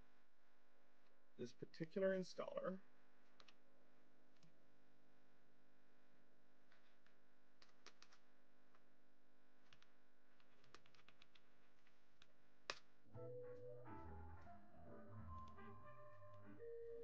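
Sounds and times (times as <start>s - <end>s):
computer keyboard keystrokes: 9.7s - 11.4s
music: 13.1s - 17.0s.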